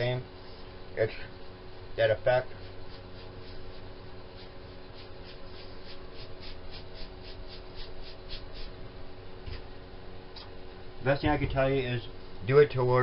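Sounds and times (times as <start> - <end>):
steady low hum: 0.0 - 13.0
paintbrush scratching on wood: 2.5 - 8.8.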